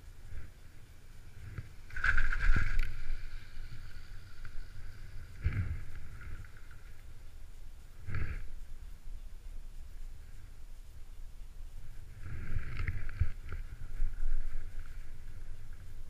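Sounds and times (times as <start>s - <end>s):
chairlift grip rumbling and clicking: 1.3s - 7.1s, 8.0s - 8.6s, 12.0s - 16.0s.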